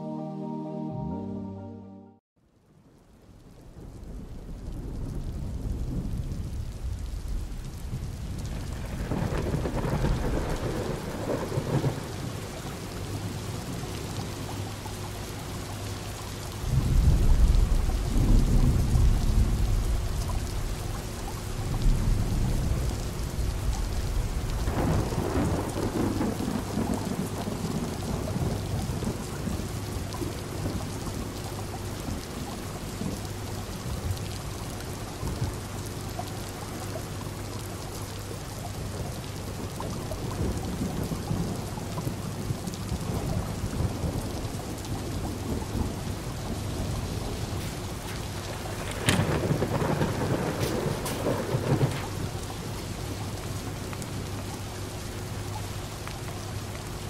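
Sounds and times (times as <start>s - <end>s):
rain against windows: 2.5s - 57.0s
thunder rolling: 3.8s - 13.4s, 16.6s - 31.2s, 39.8s - 52.9s.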